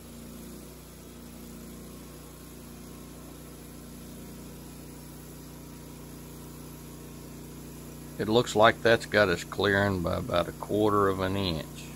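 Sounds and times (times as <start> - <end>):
sawmill engine running: 0.0 - 11.9.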